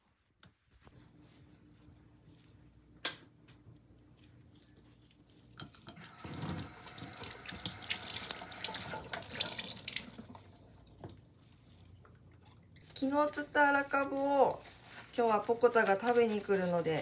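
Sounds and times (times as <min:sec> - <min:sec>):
tap water running into steel sink: 0:05.9 - 0:11.2
water splashing over sponge: 0:06.0 - 0:11.9.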